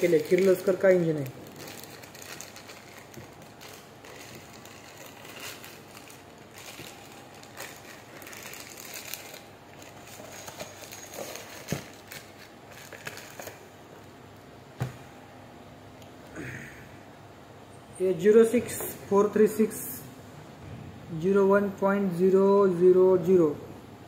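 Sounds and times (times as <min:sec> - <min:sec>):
plastic wrapping crinkling: 0:00.0 - 0:14.2.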